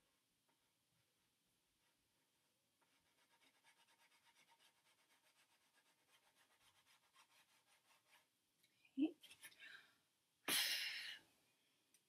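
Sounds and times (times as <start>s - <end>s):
pastel scratching on paper: 2.8s - 8.3s.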